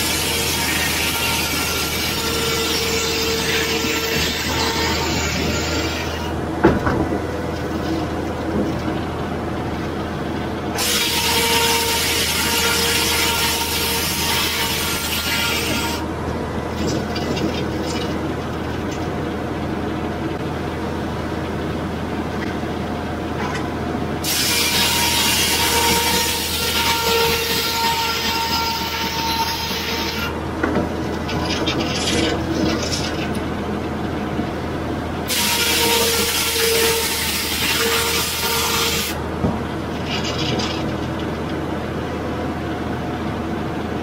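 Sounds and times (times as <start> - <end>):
circular saw running: 0.0 - 6.4, 10.7 - 16.1, 24.2 - 30.4, 35.2 - 39.2
saw cutting through log: 0.0 - 6.4, 10.7 - 16.1, 24.2 - 30.4, 35.3 - 39.2.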